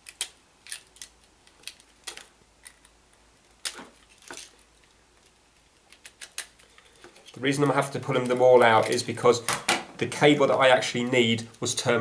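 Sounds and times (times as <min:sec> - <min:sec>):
sharp plastic and metal clicks: 0:00.0 - 0:03.0, 0:05.8 - 0:07.3.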